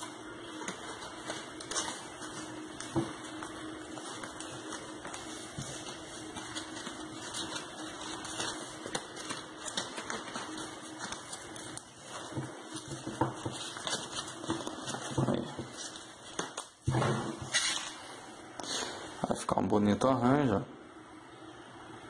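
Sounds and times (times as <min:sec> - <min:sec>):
faint steady hum: 0:00.0 - 0:22.0
foam flowers rustling and crinkling: 0:00.3 - 0:16.9.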